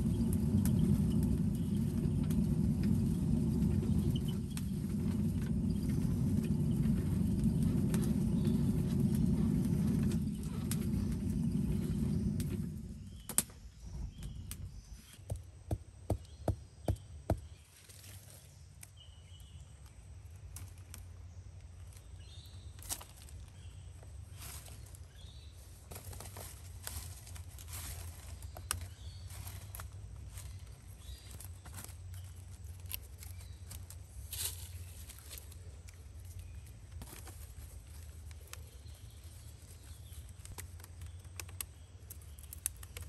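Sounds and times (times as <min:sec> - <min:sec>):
hand-turned fan blower whirring: 0:00.0 - 0:14.6
faint rustling of sticks: 0:00.0 - 0:15.2, 0:19.7 - 0:43.0.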